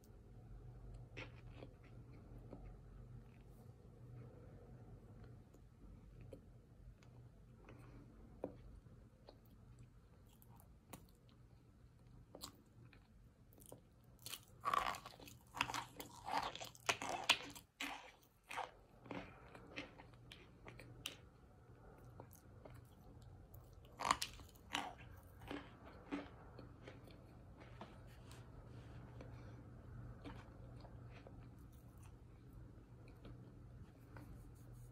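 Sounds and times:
crunchy chewing: 0:12.0 - 0:21.3, 0:22.0 - 0:28.3, 0:29.2 - 0:34.4.

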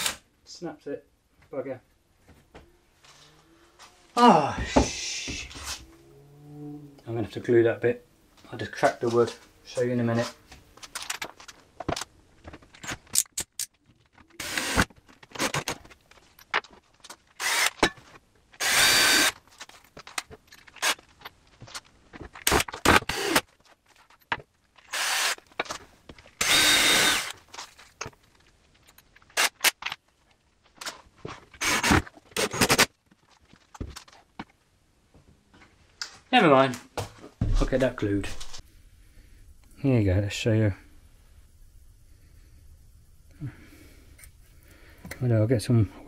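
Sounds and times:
power drill running: 0:14.4 - 0:14.9, 0:17.4 - 0:17.8, 0:18.6 - 0:19.4, 0:23.0 - 0:23.4, 0:24.9 - 0:25.4, 0:26.4 - 0:27.4.

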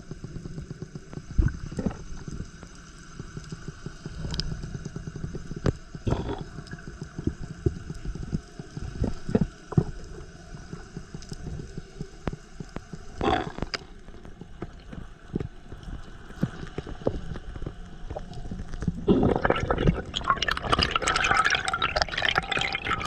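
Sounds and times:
low underwater rumble: 0:00.0 - 0:23.0
underwater clicks and pops: 0:12.2 - 0:23.0
underwater rushing bursts: 0:19.0 - 0:23.0.

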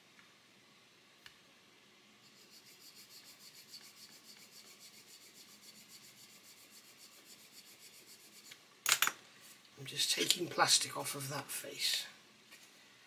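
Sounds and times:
hand file rasping on plastic: 0:02.3 - 0:08.6.

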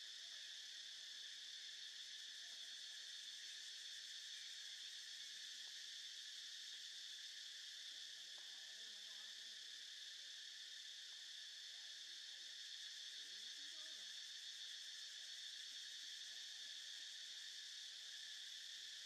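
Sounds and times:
insects buzzing: 0:00.0 - 0:19.0.

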